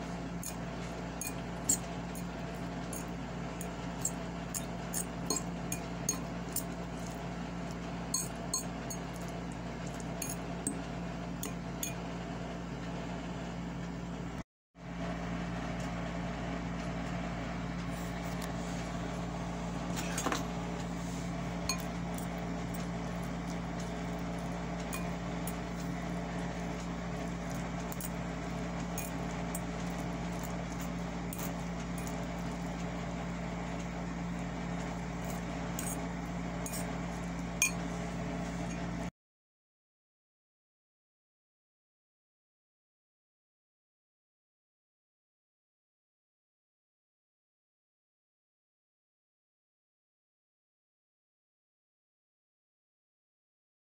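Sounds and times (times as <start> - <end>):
steady background hum: 0.0 - 39.1
metal fork clinking on glass bowl: 0.4 - 0.6, 1.2 - 2.3, 2.9 - 7.2, 8.1 - 10.8, 11.4 - 12.0, 21.7 - 22.9, 23.8 - 32.6, 35.2 - 37.9.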